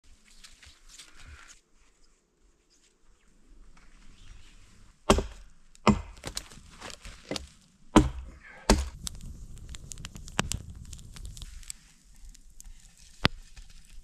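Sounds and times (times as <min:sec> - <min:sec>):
axe chopping wood: 0:05.1 - 0:06.5, 0:07.3 - 0:09.0.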